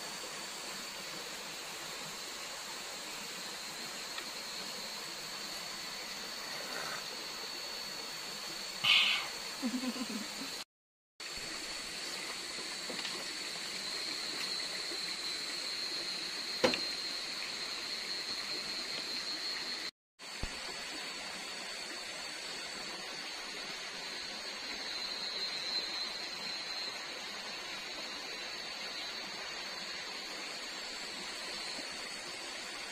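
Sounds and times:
high-pitched insect chorus: 0:00.0 - 0:10.6, 0:11.2 - 0:32.9
rushing water: 0:25.8 - 0:32.9.

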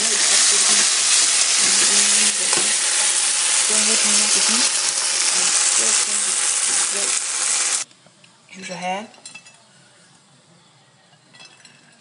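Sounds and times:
vegetables sizzling in frying pan: 0:00.0 - 0:07.9.

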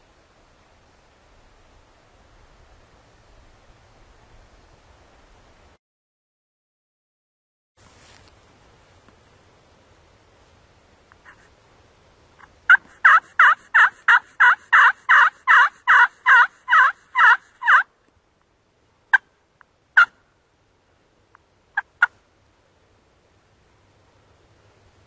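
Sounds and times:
turkey clucks: 0:12.4 - 0:17.8, 0:20.0 - 0:20.2, 0:21.8 - 0:22.2
turkey yelping: 0:12.7 - 0:17.9, 0:20.0 - 0:20.2, 0:21.8 - 0:22.2.

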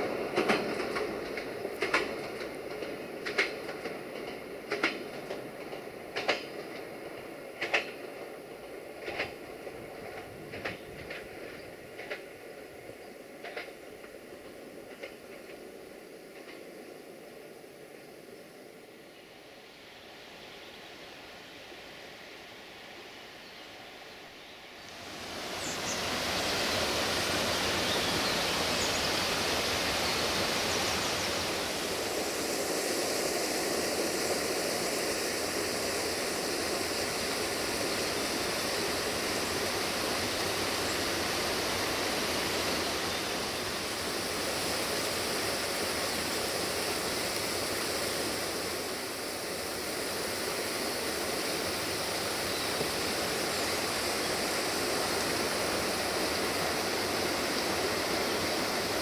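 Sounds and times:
waterfall rushing: 0:24.9 - 0:59.0.

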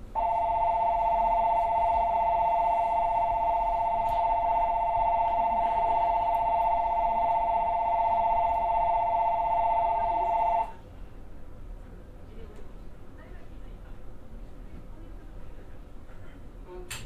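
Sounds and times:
electronic departure bell ringing: 0:00.2 - 0:10.8.

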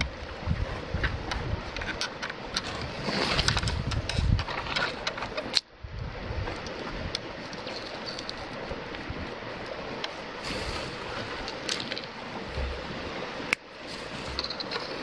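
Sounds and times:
flowing river water: 0:00.0 - 0:15.0
knife scraping wooden stick: 0:14.0 - 0:15.0.

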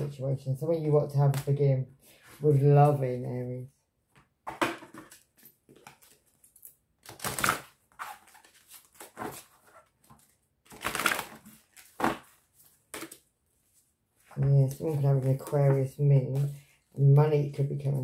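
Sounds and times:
cards being shuffled: 0:05.0 - 0:13.2.

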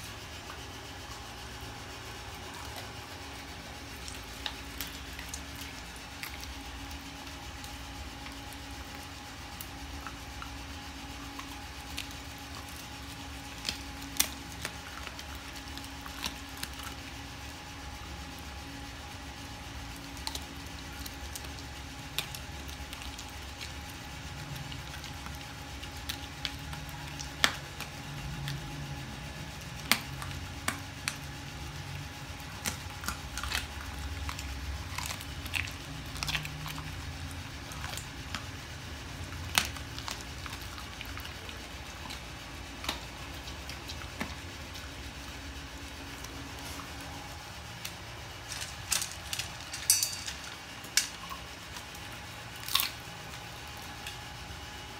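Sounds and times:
dog chewing wetly: 0:00.0 - 0:49.7
bone crunching: 0:50.9 - 0:53.4.

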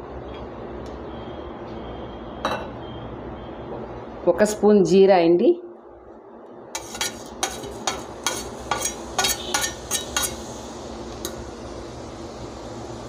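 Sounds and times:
seeds frying in hot oil: 0:06.8 - 0:13.0.

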